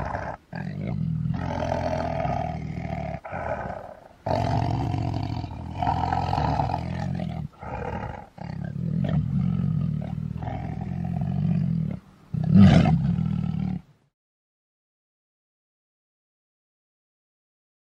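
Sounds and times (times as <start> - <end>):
tiger roaring: 0.0 - 13.9.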